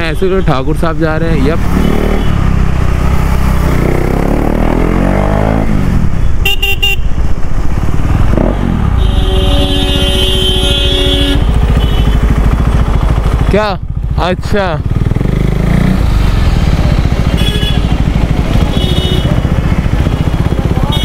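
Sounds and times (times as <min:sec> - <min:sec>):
motorcycle engine revving: 0:00.9 - 0:21.0
vehicle horn toots: 0:06.4 - 0:07.1, 0:09.0 - 0:12.3, 0:17.3 - 0:18.0, 0:18.6 - 0:19.4.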